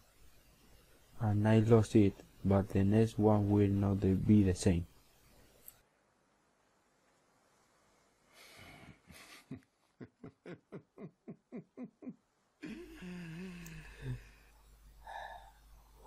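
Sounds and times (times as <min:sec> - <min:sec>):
man chuckling softly: 0:08.7 - 0:14.3
man humming low: 0:10.0 - 0:14.4.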